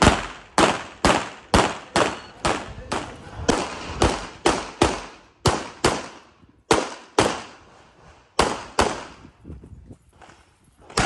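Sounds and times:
pistol shots: 0.0 - 7.6, 8.4 - 9.2.

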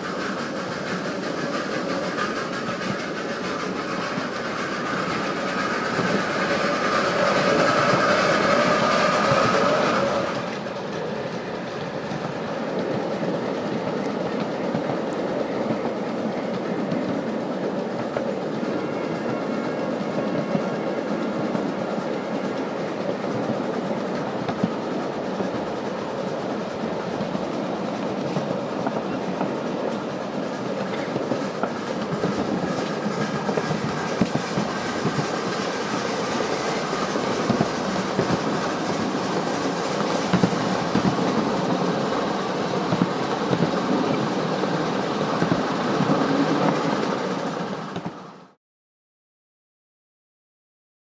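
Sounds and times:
small steam train running: 0.0 - 48.6
wheels clicking over rail joints: 30.7 - 48.2.

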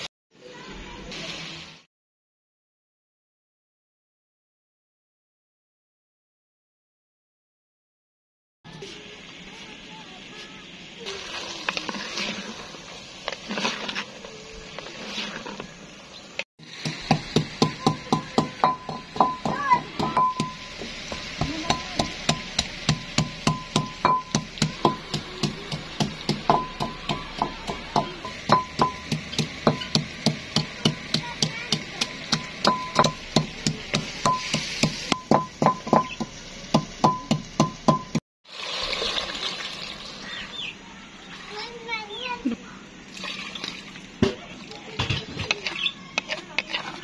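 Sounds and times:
faint sizzle: 0.0 - 1.9, 8.7 - 37.6, 38.5 - 47.0
metal spatula scraping clay pot: 11.2 - 15.8, 45.0 - 47.0
wooden pestle pounding in clay bowl: 16.8 - 38.2.

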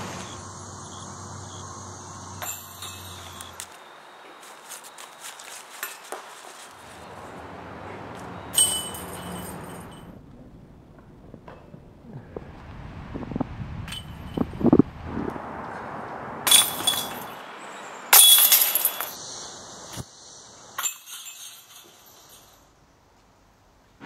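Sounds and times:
discs striking basket chains: 2.4 - 10.2, 13.9 - 14.6, 16.4 - 19.2, 20.8 - 22.7.

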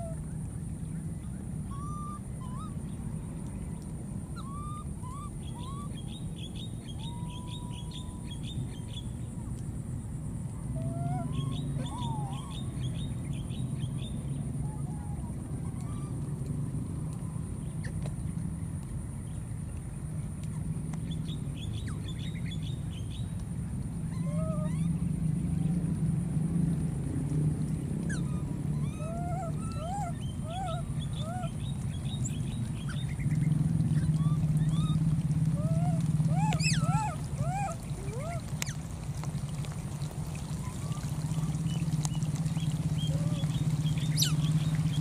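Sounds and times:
gliding animal cries: 24.1 - 25.0, 28.1 - 31.6, 33.9 - 38.8, 42.9 - 45.0
steady low rumble: 24.8 - 45.0
baby monkey whimpering: 28.1 - 31.5, 35.6 - 38.4.

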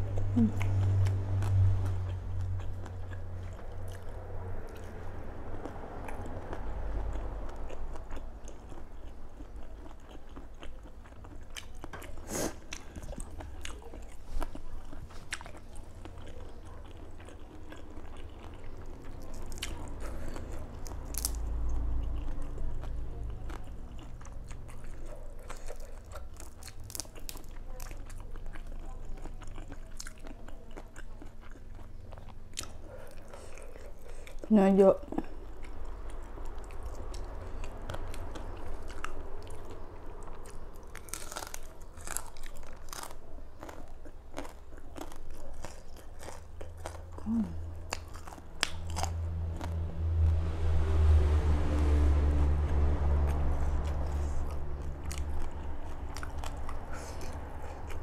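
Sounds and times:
chewing and crunching shrimp: 0.0 - 58.0.

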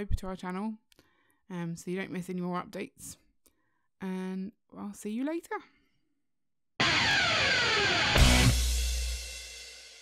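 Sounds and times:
drum and cymbal hit ringing: 6.8 - 10.0
outro music: 6.8 - 10.0.

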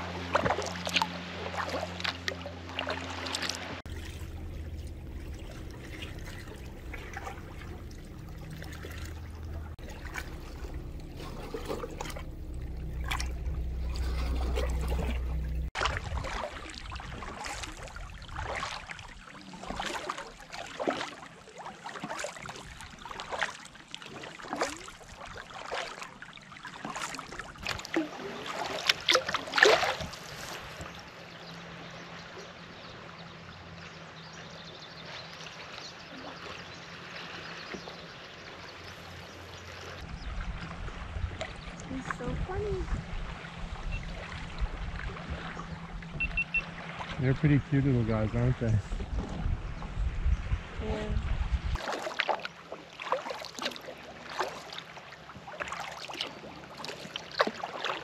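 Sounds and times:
steady low hum: 0.0 - 15.8
paddle strokes splashing water: 0.0 - 50.6, 51.6 - 58.0.

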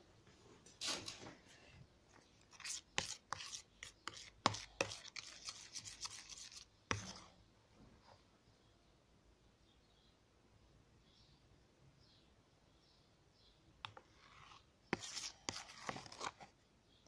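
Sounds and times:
spoon scraping plastic tub: 2.4 - 7.4, 13.8 - 16.5.

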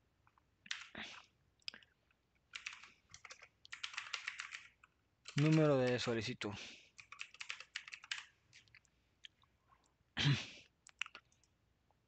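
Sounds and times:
computer keyboard typing: 0.7 - 1.0, 2.5 - 6.2, 6.9 - 8.6.

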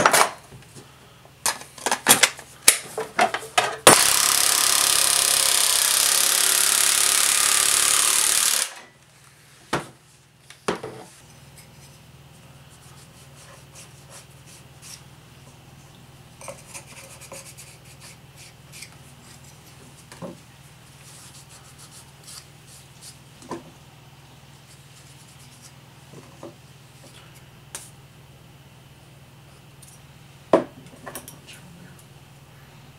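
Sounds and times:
reciprocating saw cutting wood: 4.0 - 8.8
rubbing and scratching: 12.7 - 15.1, 16.4 - 20.1, 20.9 - 23.3, 24.6 - 25.8.

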